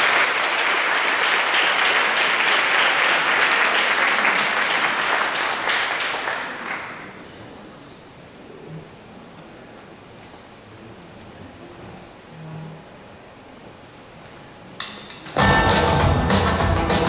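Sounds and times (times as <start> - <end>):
audience applauding: 0.0 - 7.2.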